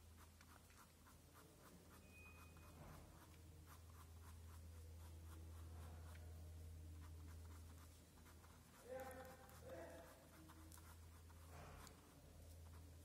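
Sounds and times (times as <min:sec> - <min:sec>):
low steady hum: 0:00.0 - 0:13.0
pen scratching on paper: 0:00.0 - 0:13.0.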